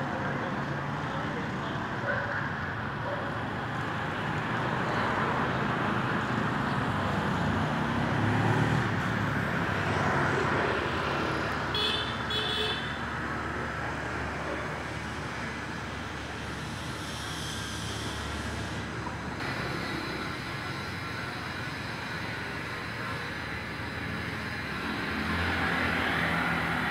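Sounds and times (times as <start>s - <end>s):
road traffic passing: 0.0s - 26.9s.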